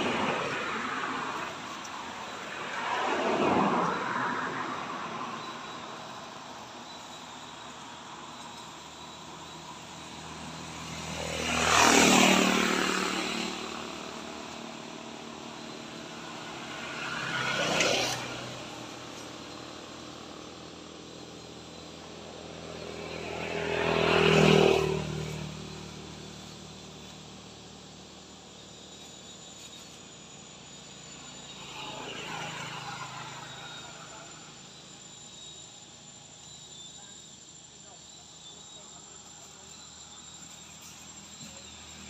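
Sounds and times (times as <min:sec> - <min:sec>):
vehicles passing on road: 0:00.0 - 0:42.0.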